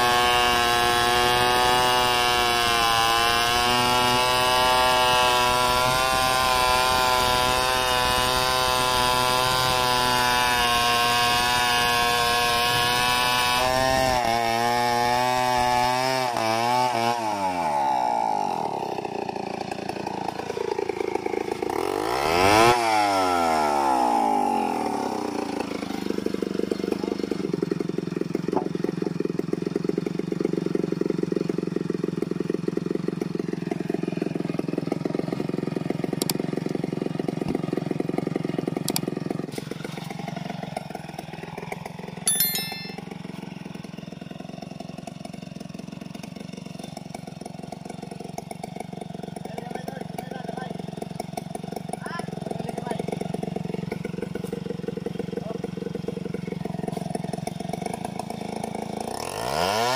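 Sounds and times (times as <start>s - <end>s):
chainsaw cutting log: 0.0s - 59.9s
chainsaw idling: 0.0s - 59.9s
chainsaw revving: 0.0s - 59.9s.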